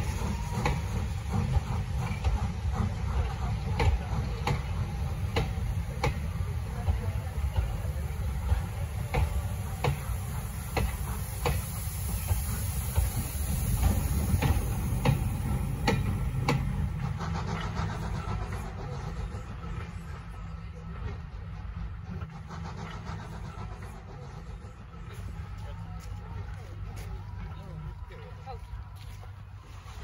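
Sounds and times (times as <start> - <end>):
steam hissing: 0.0 - 20.2, 22.1 - 25.6
steam locomotive exhaust beats: 0.0 - 30.0.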